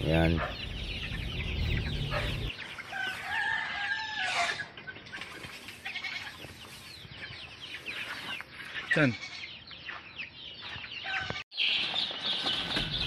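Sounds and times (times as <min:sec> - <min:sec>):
chicks peeping: 0:00.0 - 0:13.0
rooster crowing: 0:02.1 - 0:04.6.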